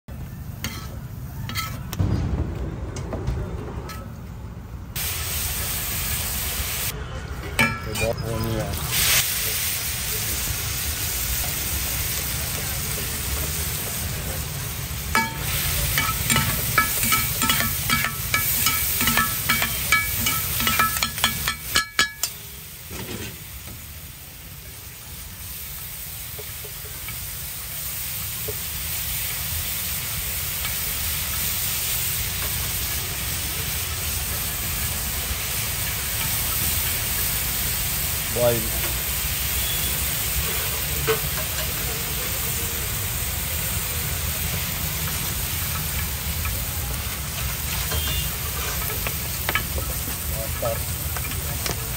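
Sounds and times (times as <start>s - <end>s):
food sizzling on a griddle: 0.1s - 2.0s, 5.0s - 7.0s, 7.6s - 51.9s
spatulas scraping a griddle: 0.6s - 1.9s, 47.3s - 50.1s.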